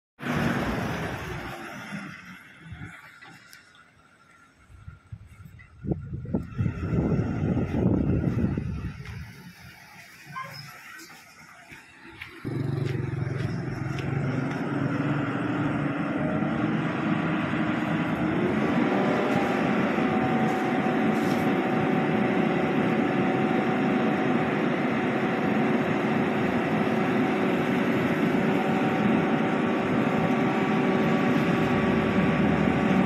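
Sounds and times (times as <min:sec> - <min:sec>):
garbage truck diesel engine: 0:00.2 - 0:33.0.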